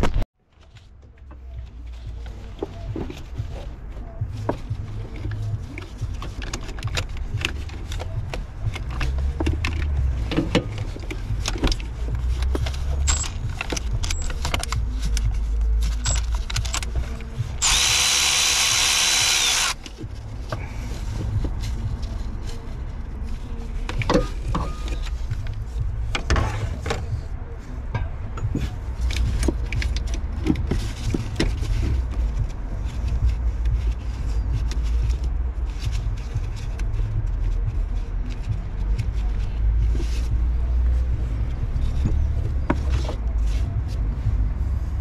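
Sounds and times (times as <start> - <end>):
steady low rumble: 0.5 - 45.0
clicks and knocks of metal parts: 5.2 - 17.3
electric ratchet spinning: 17.6 - 19.8.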